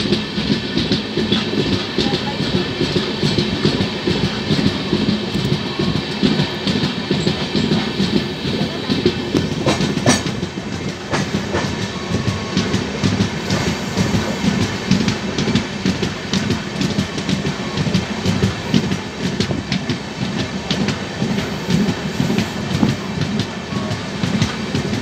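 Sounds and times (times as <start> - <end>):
train rolling rumble: 0.0 - 25.0.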